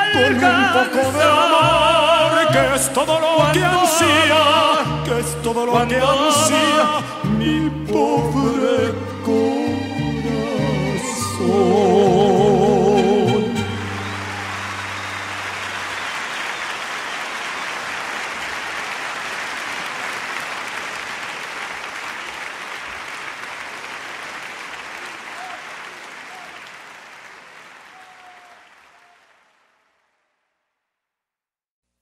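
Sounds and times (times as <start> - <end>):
audience applauding: 13.3 - 30.4.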